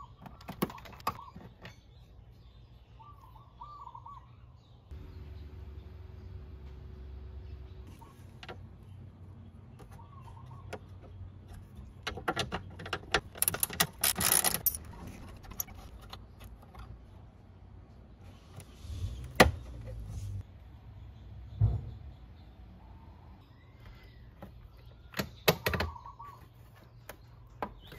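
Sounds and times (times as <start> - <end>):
plastic parts clicking: 11.6 - 16.9.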